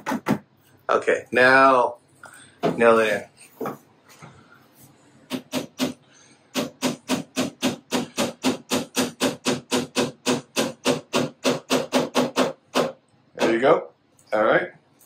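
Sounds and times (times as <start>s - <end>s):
hammer driving nails into fibreboard: 5.3s - 6.0s, 6.6s - 13.5s.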